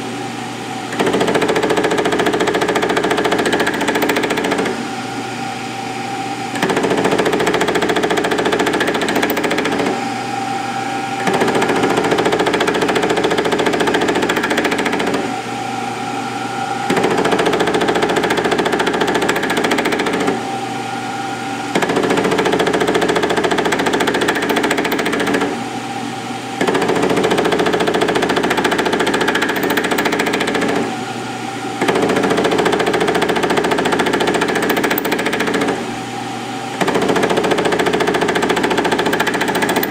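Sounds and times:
milling machine motor hum: 0:00.0 - 0:39.9
cutter cutting steel: 0:00.9 - 0:25.6.

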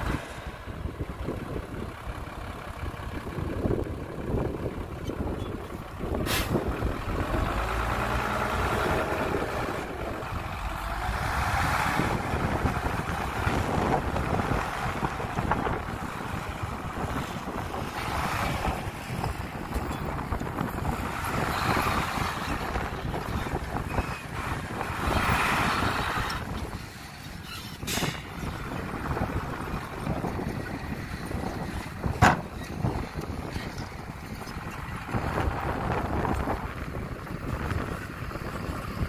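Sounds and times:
heavy diesel engines running: 0:00.0 - 0:39.0.

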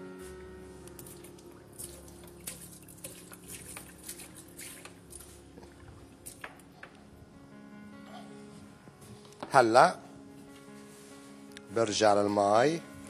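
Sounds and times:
water splashing in metal pot: 0:01.0 - 0:06.6.

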